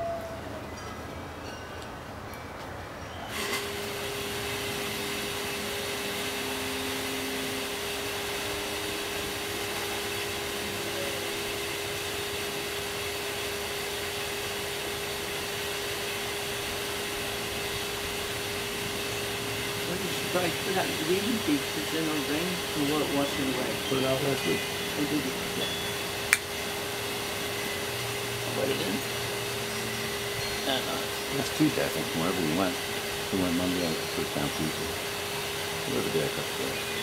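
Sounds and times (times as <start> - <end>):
steady motor hum: 3.3 - 37.0
machine motor whooshing whir: 15.8 - 36.8.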